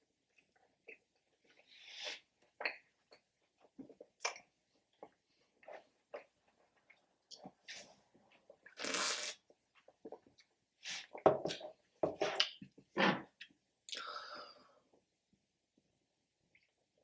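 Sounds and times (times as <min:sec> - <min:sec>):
sipping through a straw: 0:08.7 - 0:09.4.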